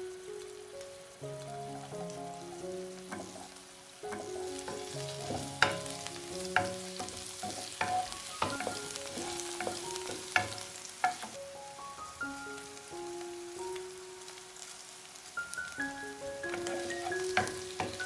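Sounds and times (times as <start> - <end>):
sauce sizzling in frying pan: 0.0 - 18.0
spatula knocking against pan: 3.1 - 3.4, 4.1 - 11.4, 16.5 - 18.0.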